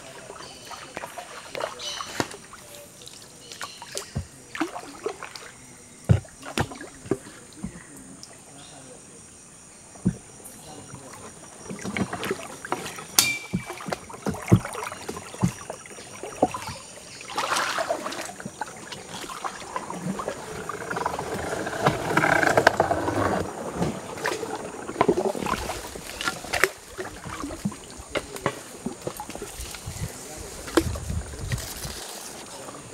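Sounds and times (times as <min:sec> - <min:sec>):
paddle strokes splashing water: 0:00.0 - 0:09.0, 0:09.9 - 0:32.9
paddle knocking wooden hull: 0:03.6 - 0:05.4, 0:06.0 - 0:07.9, 0:10.0 - 0:31.6.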